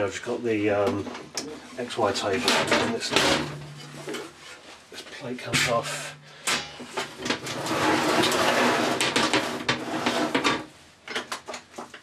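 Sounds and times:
metal plate scraping over frame: 2.0s - 4.6s, 5.6s - 10.7s.

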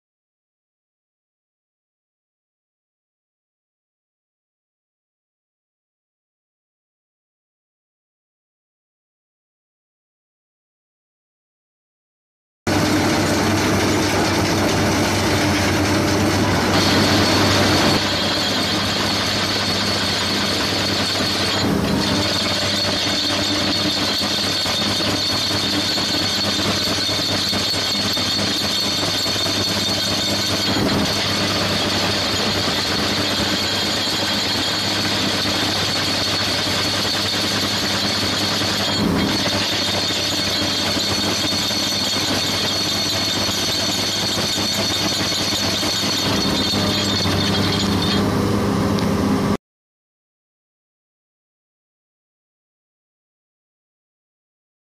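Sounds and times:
excavator engine running: 12.7s - 49.6s
high-pitched hydraulic whine: 12.7s - 49.6s.

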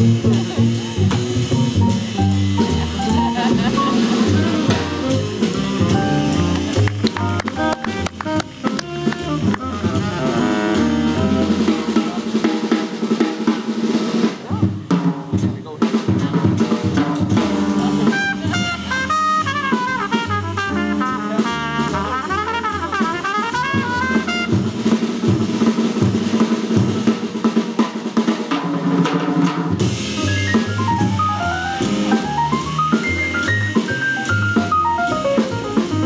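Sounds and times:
upright bass: 0.0s - 13.2s, 14.4s - 26.9s, 29.8s - 36.0s
piano: 0.0s - 14.3s, 16.9s - 28.0s, 29.7s - 36.0s
drum kit: 0.0s - 36.0s
tenor saxophone: 3.2s - 12.2s, 17.9s - 24.7s
trumpet: 3.8s - 12.4s, 17.4s - 25.0s.

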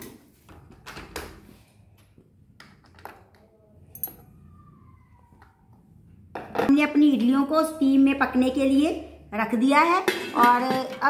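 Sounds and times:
light metal taps and clinks: 3.9s - 4.2s.

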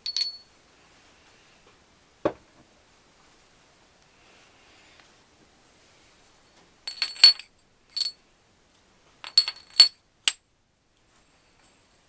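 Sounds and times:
metal gear clinking on shaft: 0.0s - 0.4s, 6.9s - 8.2s.

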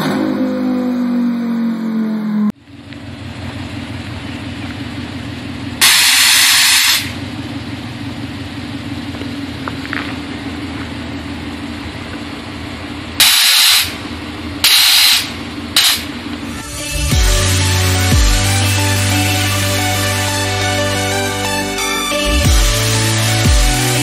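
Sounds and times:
car engine idling: 2.6s - 5.8s, 7.1s - 13.2s
purge valve hissing blasts: 5.8s - 7.1s, 13.2s - 14.0s, 14.6s - 16.1s.

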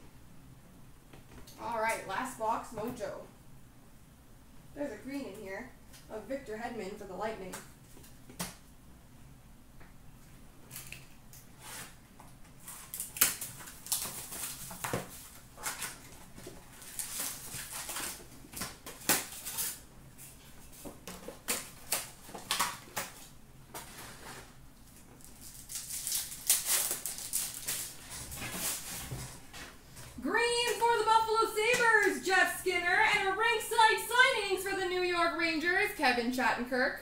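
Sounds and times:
wrappers rustling and crinkling: 10.7s - 30.2s
paper tearing: 25.3s - 29.0s.

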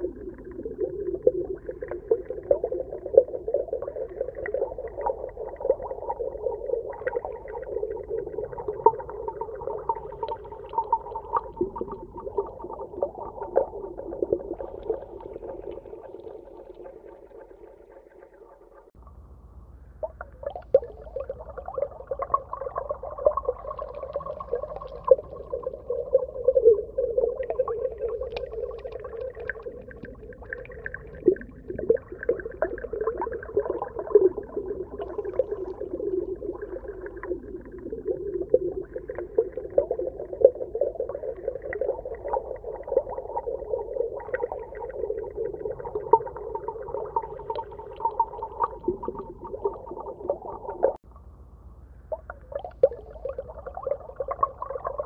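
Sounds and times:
underwater wavering hum: 0.0s - 55.0s
soft underwater clicks: 27.9s - 31.4s.

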